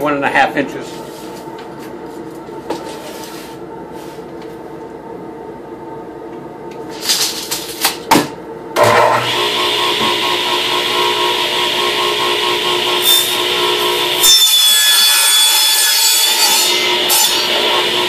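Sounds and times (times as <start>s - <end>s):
power tool motor running: 8.8s - 14.2s, 16.9s - 18.0s.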